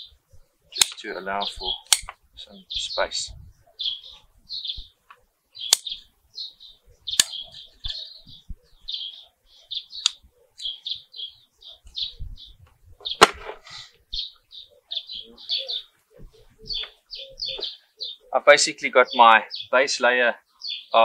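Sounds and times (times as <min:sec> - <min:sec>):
bird chirping: 0:00.0 - 0:21.0
pruning shears snipping: 0:01.8 - 0:02.2.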